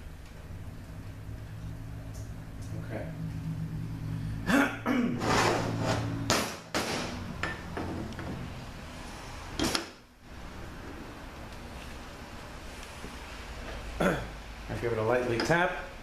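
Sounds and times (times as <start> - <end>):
low hum: 0.0 - 6.4
metal knocks and scrapes: 5.2 - 8.5.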